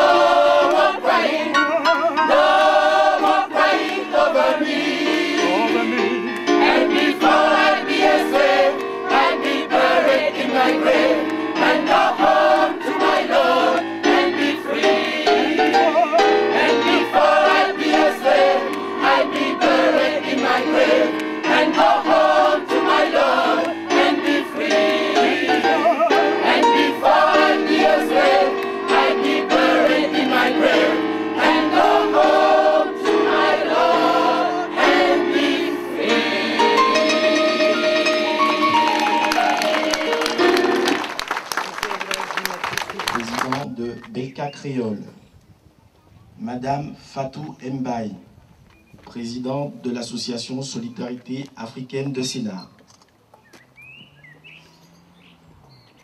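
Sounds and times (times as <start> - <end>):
gospel choir singing: 0.0 - 41.3
electric keyboard: 0.0 - 42.2
hand claps: 3.8 - 4.1, 38.9 - 43.7.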